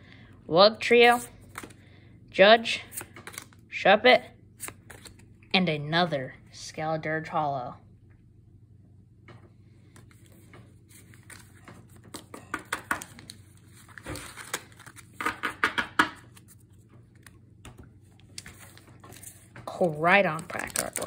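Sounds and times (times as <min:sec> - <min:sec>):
trading cards rustling and clicking: 0:01.1 - 0:01.8, 0:02.9 - 0:03.6, 0:04.6 - 0:05.4, 0:09.9 - 0:15.6, 0:16.2 - 0:21.0.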